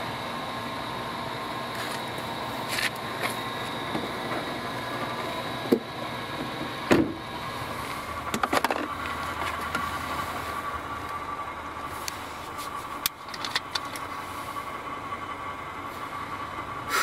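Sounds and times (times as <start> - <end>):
car engine idling: 0.0 - 17.0
car door shutting: 6.9 - 7.2.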